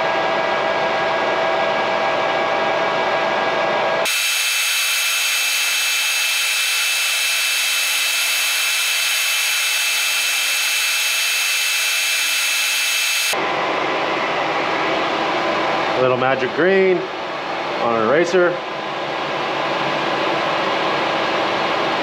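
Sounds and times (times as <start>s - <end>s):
metal lathe cutting: 4.0s - 13.4s.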